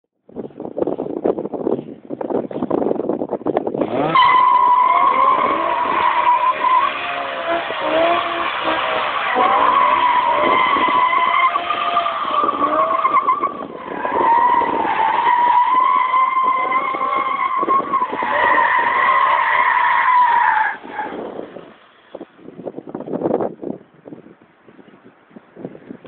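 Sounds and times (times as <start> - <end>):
engine revving: 3.8 - 13.2
car tyres squealing: 3.8 - 22.2.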